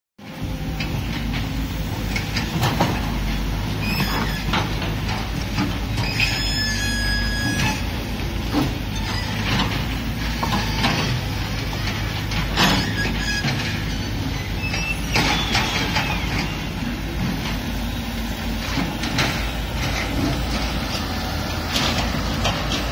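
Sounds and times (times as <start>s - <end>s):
excavator diesel engine running: 0.2s - 22.9s
high squeal: 3.8s - 4.6s, 6.0s - 7.9s, 12.6s - 17.0s.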